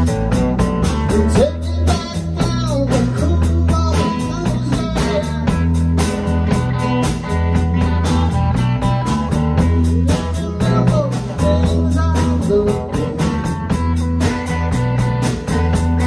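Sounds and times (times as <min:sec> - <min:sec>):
drum kit beat: 0:00.0 - 0:16.0
electric bass: 0:00.0 - 0:16.0
electric guitars: 0:00.0 - 0:16.0.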